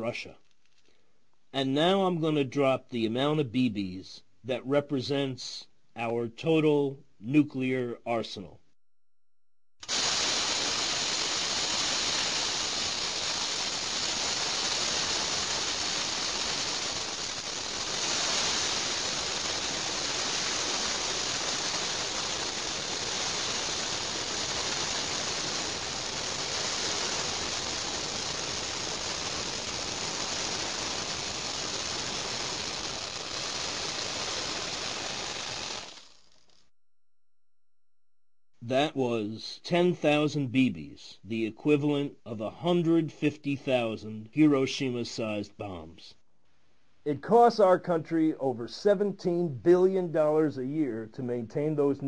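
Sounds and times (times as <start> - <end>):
metal pellets pouring and rattling: 9.8 - 36.6.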